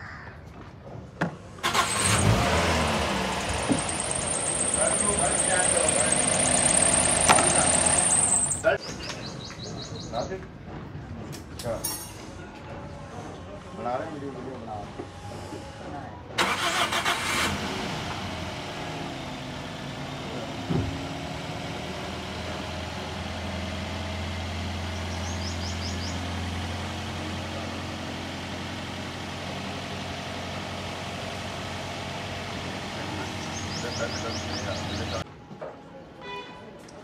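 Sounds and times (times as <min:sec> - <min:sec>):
car engine idling: 0:01.6 - 0:08.8, 0:16.4 - 0:35.2
loud engine burst: 0:01.6 - 0:08.8, 0:16.4 - 0:35.2
engine knock: 0:03.6 - 0:08.7.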